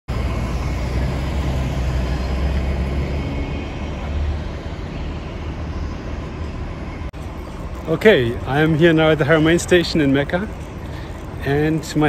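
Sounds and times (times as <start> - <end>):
vehicle engine rumbling: 0.1 - 12.0.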